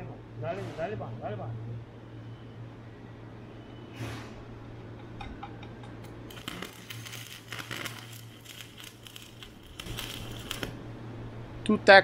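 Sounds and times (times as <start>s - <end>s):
welding arc crackling: 6.0s - 10.9s.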